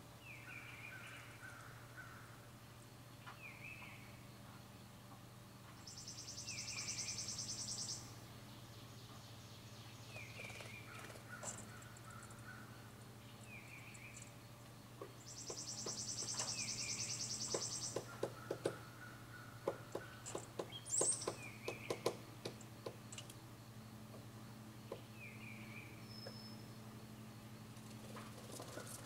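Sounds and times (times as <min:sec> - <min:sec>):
insect buzzing: 0:05.8 - 0:08.2
woodpecker tapping on wood: 0:15.0 - 0:16.6, 0:17.4 - 0:18.9, 0:19.6 - 0:23.4.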